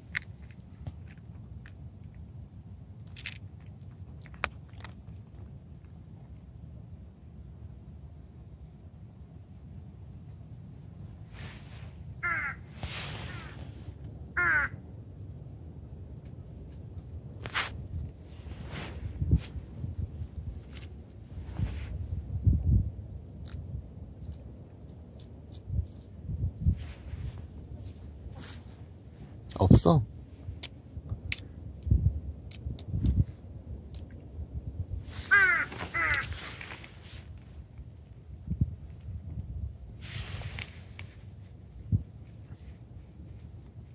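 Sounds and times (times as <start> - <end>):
crow cawing: 12.2 - 12.7, 14.4 - 14.8, 35.3 - 36.4
brief hiss: 12.7 - 13.9.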